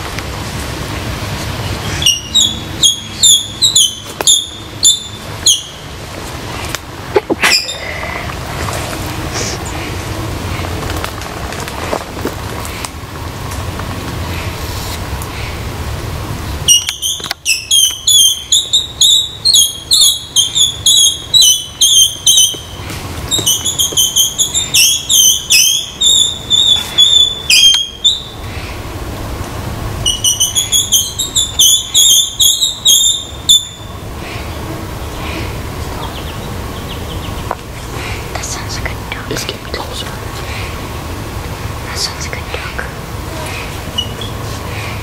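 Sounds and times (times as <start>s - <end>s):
high-pitched chirping calls: 1.6s - 5.9s, 16.5s - 28.9s, 30.0s - 37.5s, 43.4s - 45.0s.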